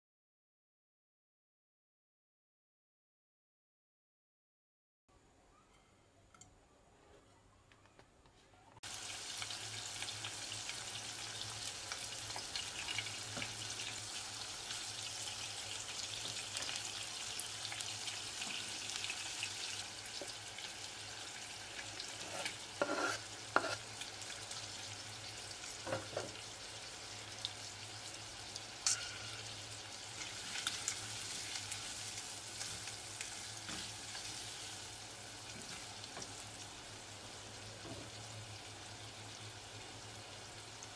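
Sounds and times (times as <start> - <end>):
shrimp sizzling in oil: 8.8 - 40.9
spatula knocking and scraping pot: 22.2 - 23.8.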